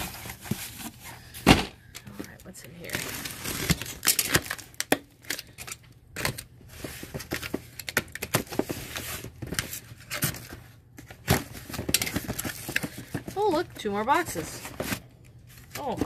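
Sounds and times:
cardboard flaps scraping and crinkling: 0:00.0 - 0:01.7
tape tearing: 0:02.9 - 0:05.5.

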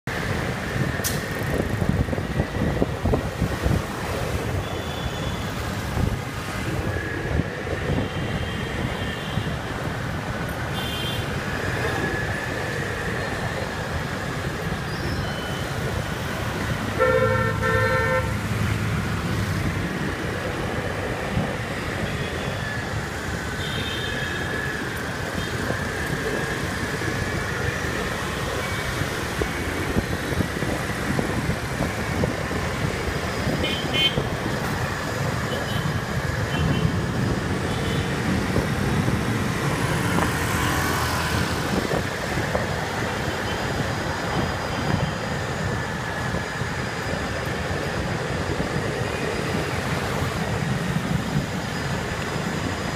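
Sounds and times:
motorbike engines and road noise: 0:00.0 - 0:52.9
vehicle horn honking: 0:17.0 - 0:18.3.

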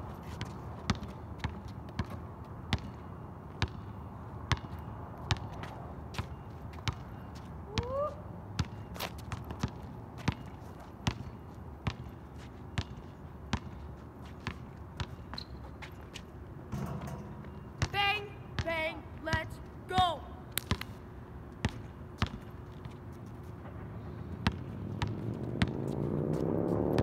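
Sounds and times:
basketball bouncing on asphalt: 0:00.2 - 0:07.9, 0:08.5 - 0:27.0
shoe squeak: 0:15.1 - 0:17.9.

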